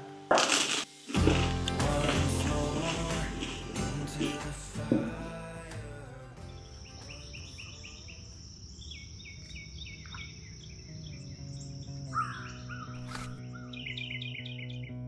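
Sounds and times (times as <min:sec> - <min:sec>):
birds chirping: 0:06.2 - 0:15.0
high insect trill: 0:06.5 - 0:13.4.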